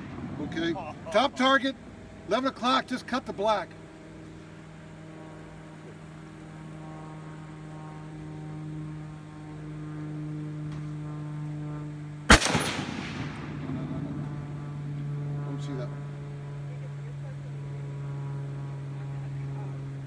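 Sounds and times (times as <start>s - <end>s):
steady low hum: 0.0s - 20.0s
rifle shot with echo: 12.3s - 14.5s.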